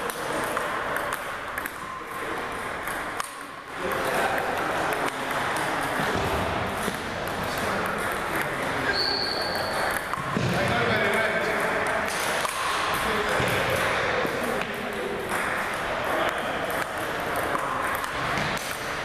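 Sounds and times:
hum of voices in a hall: 0.0 - 19.0
ping-pong ball clicking: 0.1 - 6.0, 6.8 - 8.7, 9.5 - 10.3, 14.6 - 18.8
brief high squeak: 8.9 - 9.8.

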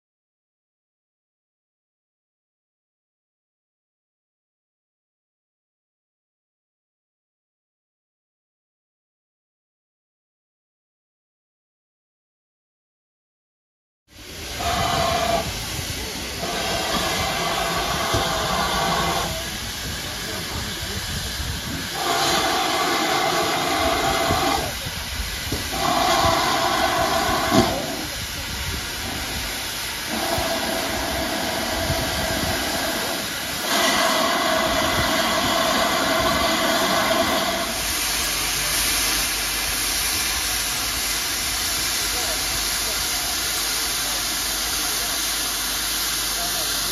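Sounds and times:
steam hissing: 14.2 - 46.9.

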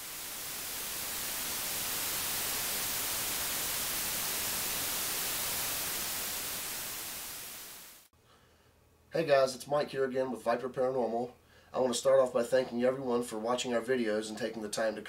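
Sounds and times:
static hiss: 0.0 - 8.1.

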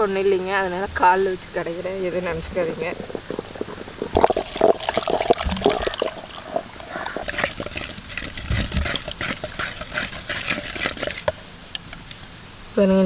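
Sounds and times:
wooden masher churning in clay pot: 2.4 - 11.4.

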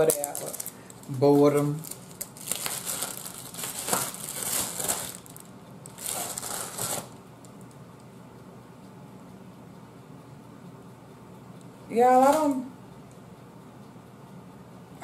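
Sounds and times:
plastic mailer bag crinkling: 0.0 - 7.2.

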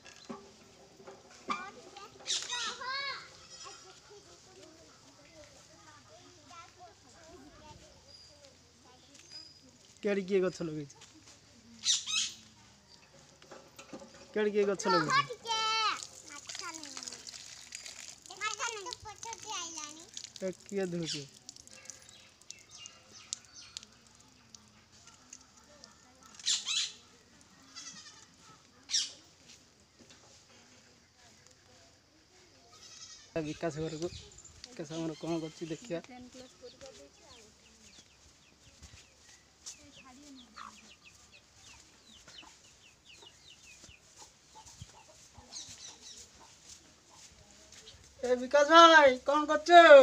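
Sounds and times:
chicks peeping: 40.3 - 47.3.

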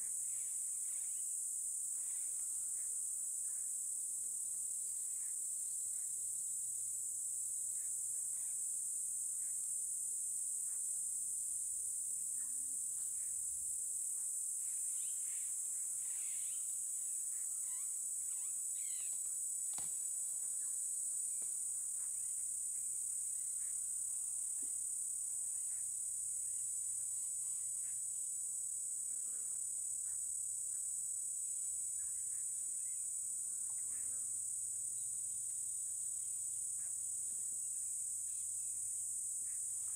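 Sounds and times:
insects chorus: 0.0 - 39.9
faint bird chirps: 14.6 - 19.3
sharp click: 19.7 - 20.0.

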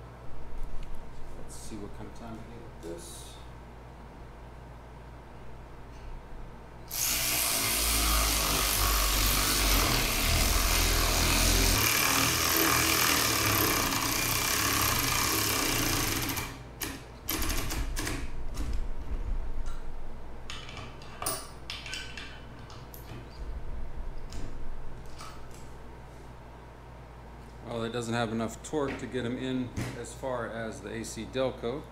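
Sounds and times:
cordless ratchet running: 10.6 - 16.6.

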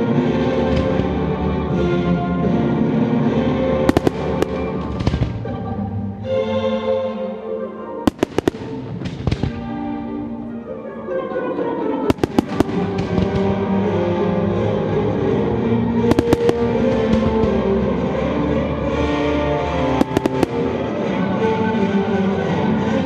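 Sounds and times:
sustained music: 0.0 - 23.0
firework shells bursting: 0.7 - 1.3, 3.9 - 5.8, 8.1 - 10.5, 12.1 - 14.1, 16.1 - 18.1, 19.6 - 21.3.

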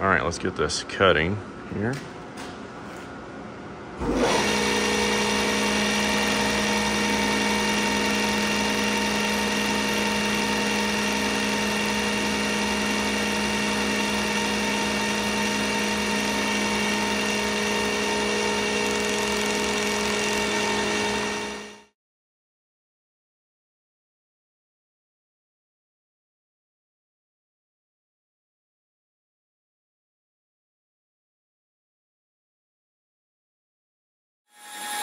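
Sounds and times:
line boring machine whine: 4.0 - 21.9, 34.6 - 35.0.

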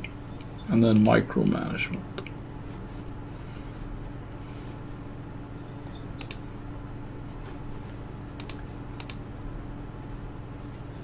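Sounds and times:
low electrical hum: 0.0 - 11.0
sharp computer clicks: 0.9 - 1.2, 6.2 - 6.4, 8.4 - 9.2.

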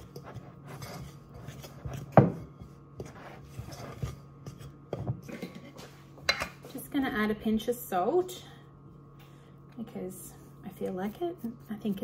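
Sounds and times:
spoon scraping ceramic bowl: 0.0 - 2.4, 3.0 - 4.8.

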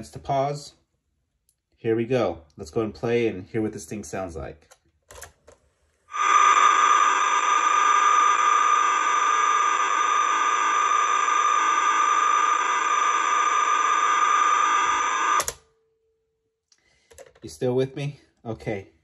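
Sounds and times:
screechy computer data tone: 6.1 - 15.4.

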